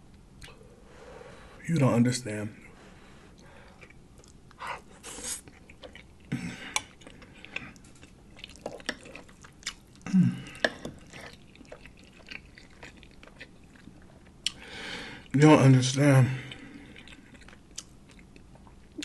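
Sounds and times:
wet chewing and lip-smacking: 3.7 - 14.6, 16.5 - 19.0.

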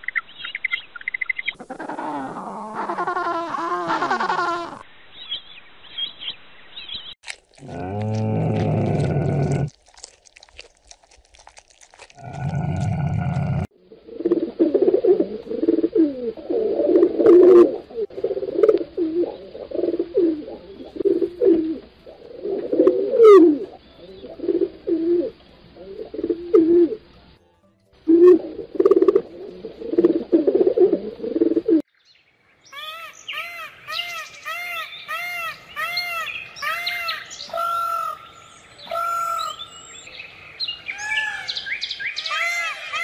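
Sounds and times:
pigeons cooing: 1.6 - 4.8, 12.4 - 27.0, 28.1 - 31.8.

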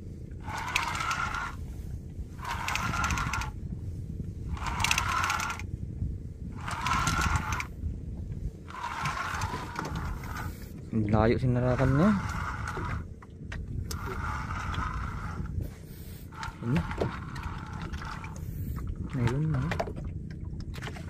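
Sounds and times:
low rumble: 0.0 - 21.0
fishing reel whirring and clicking: 0.4 - 3.6, 4.5 - 5.7, 6.6 - 7.8, 8.6 - 10.7, 11.6 - 13.1, 13.9 - 15.6, 16.2 - 18.6.

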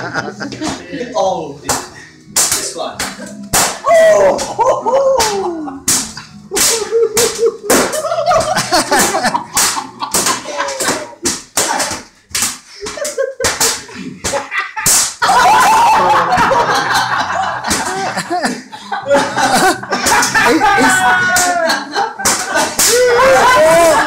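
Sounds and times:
men laughing: 0.0 - 1.1, 3.1 - 11.9, 12.7 - 24.0
men yelling: 3.8 - 5.9, 15.2 - 24.0.

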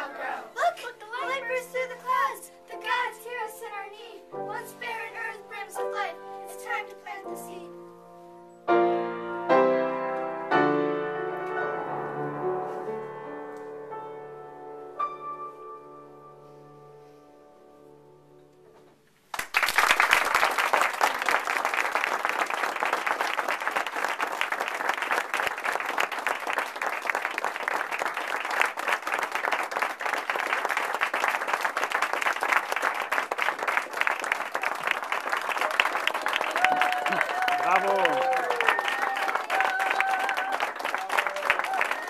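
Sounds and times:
audience applause: 19.3 - 42.0.

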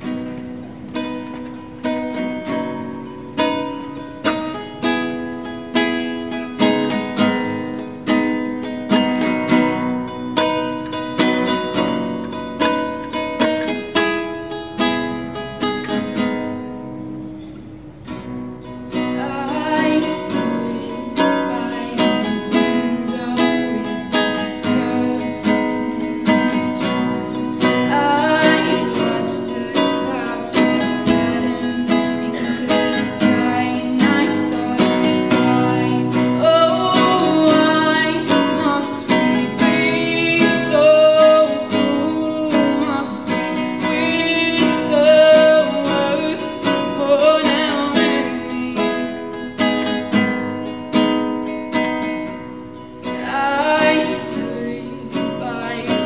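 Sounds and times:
classical guitar chords: 0.0 - 56.0
girl singing: 18.8 - 50.2, 53.0 - 56.0.

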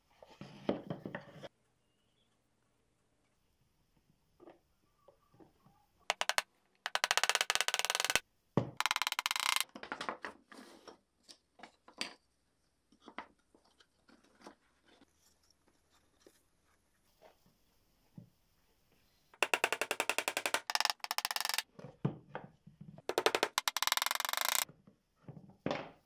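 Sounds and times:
hammer tapping on wooden box: 6.1 - 8.2.

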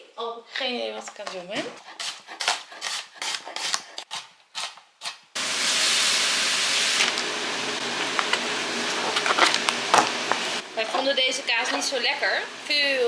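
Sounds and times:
knife chopping onion on board: 2.0 - 5.2.

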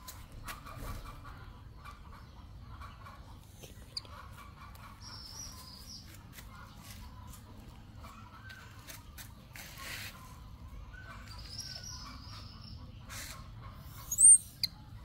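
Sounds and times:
animal calls: 9.8 - 15.0.

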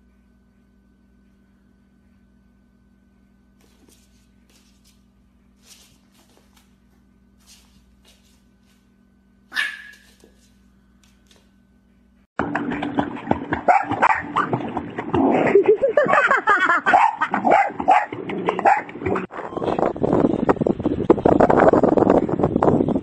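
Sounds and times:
dog barking and yelping: 9.5 - 10.3, 16.8 - 18.9.

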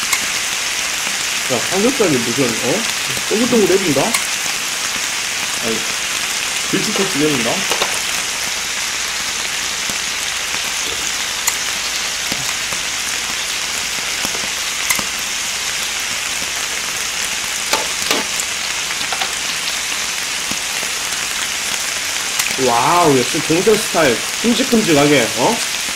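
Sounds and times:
meat sizzling on a griddle: 0.0 - 25.9
metal tongs clicking: 0.1 - 0.3, 14.3 - 15.1.

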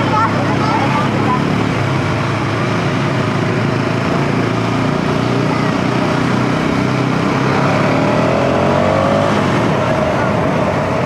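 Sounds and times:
motorcycle engine running: 0.0 - 11.0
wind rushing over microphone: 6.9 - 11.0.

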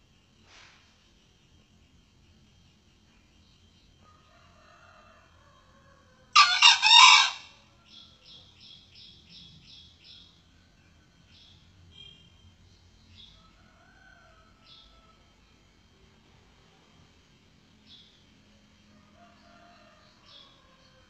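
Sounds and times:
faint insect hum: 0.0 - 21.0
rooster crowing: 4.0 - 8.0, 13.4 - 15.3, 19.0 - 21.0.

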